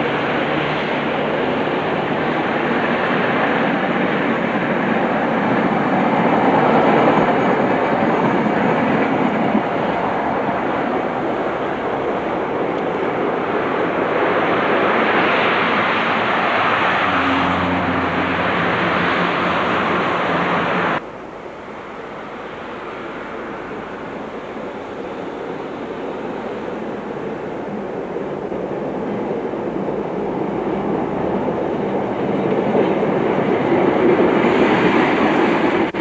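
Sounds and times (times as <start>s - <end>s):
road noise: 0.0s - 36.0s
vehicle and rail running noise: 0.0s - 36.0s.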